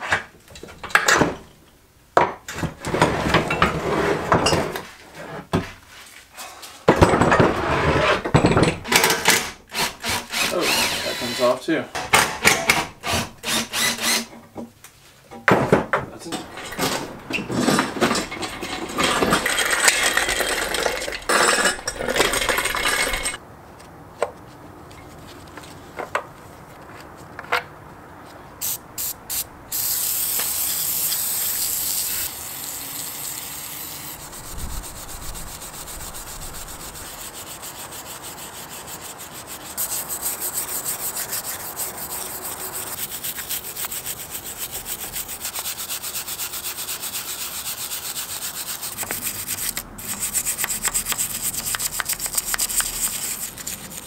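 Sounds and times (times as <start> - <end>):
loud clattering and knocks: 6.9 - 9.6, 15.4 - 23.4
aerosol spray can hissing: 28.6 - 37.4
stiff brush scrubbing: 31.5 - 54.0.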